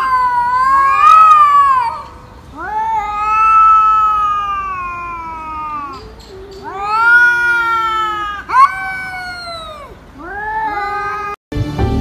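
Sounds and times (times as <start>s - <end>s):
cats yowling: 0.0s - 11.4s
cat moaning growl: 2.6s - 11.4s.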